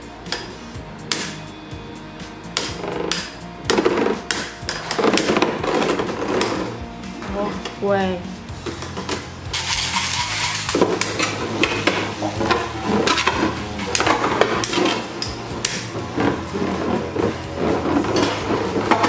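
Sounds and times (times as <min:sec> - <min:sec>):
spinning tops whirring: 0:08.6 - 0:19.0.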